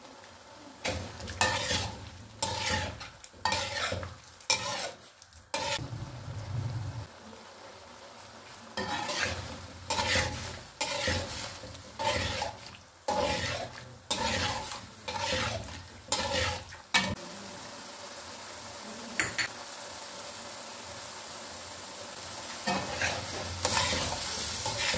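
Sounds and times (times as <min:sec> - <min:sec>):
ghee sizzling: 0:00.0 - 0:24.9
metal spatula scraping wok: 0:00.8 - 0:05.8, 0:08.8 - 0:17.2, 0:22.6 - 0:24.9.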